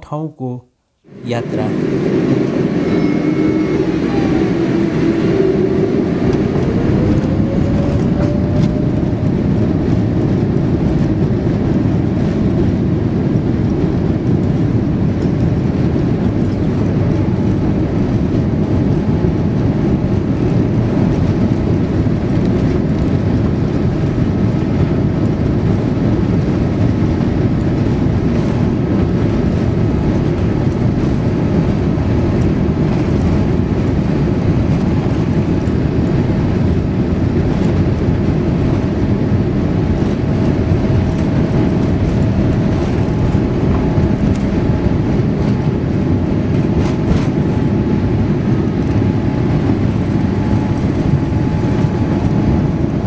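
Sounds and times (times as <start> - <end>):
jet engines spooling up and rumbling: 1.0 - 53.0.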